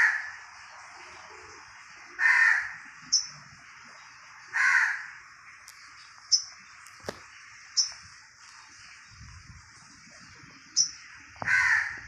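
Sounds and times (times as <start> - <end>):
harsh bird calls: 0.0 - 12.0
high bird chirps: 3.0 - 3.4, 5.7 - 9.3, 10.2 - 11.2.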